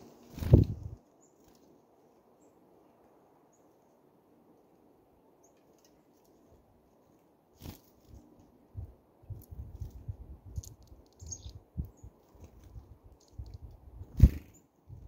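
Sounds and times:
faint high bird chirps: 11.1 - 12.2.

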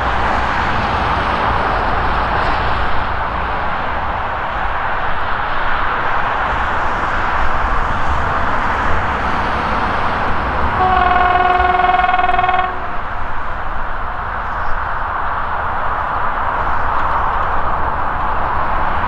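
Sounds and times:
locomotive horn chord: 10.6 - 13.5.

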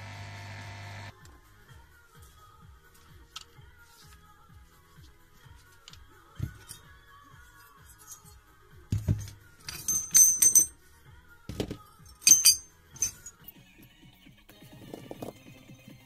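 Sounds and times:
metal parts knocking: 8.9 - 10.7, 11.5 - 13.4
metal parts clinking: 9.0 - 10.8, 12.1 - 13.4.

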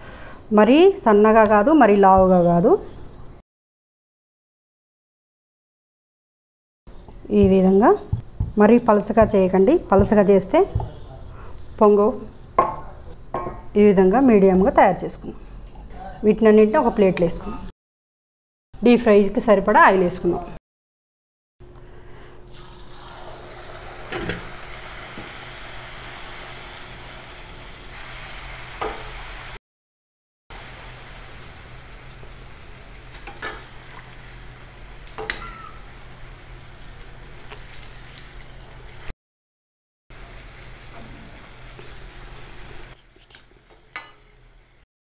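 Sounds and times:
deep-frying sizzle in oil: 22.5 - 29.6, 30.5 - 39.1, 40.2 - 44.8.

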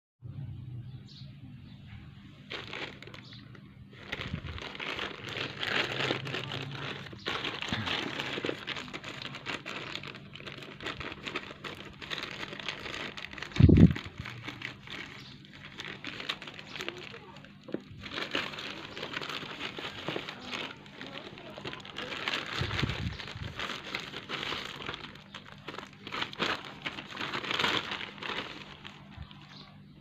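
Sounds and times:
plastic mailer crinkling: 2.4 - 29.7
scissors cutting plastic: 4.1 - 28.9.

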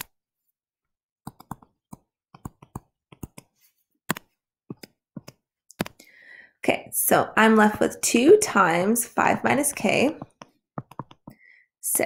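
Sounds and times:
stylus tapping on tablet screen: 1.3 - 6.0, 9.4 - 11.5.

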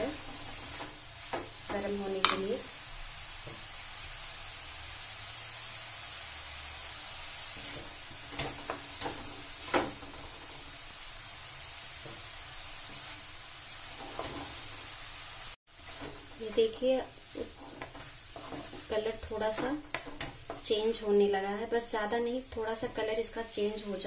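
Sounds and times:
carrots sizzling in a pan: 0.0 - 24.0
wooden spatula scraping pan: 14.0 - 14.6, 15.8 - 21.0.

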